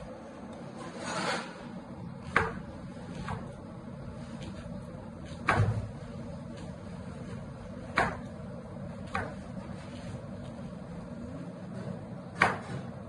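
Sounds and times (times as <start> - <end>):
knife chopping on plastic board: 2.3 - 3.6, 7.9 - 8.3, 9.0 - 9.5, 12.3 - 12.9.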